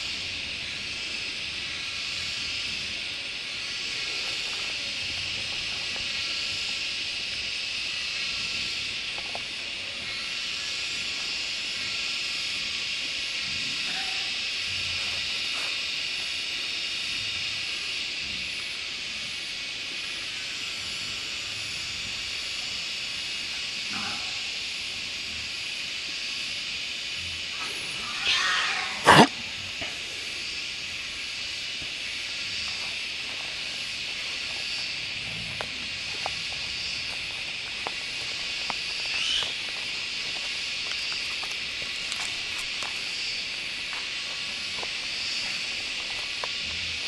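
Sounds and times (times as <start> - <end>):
high-pitched hiss: 0.0 - 47.0
boar grunting: 28.2 - 29.6.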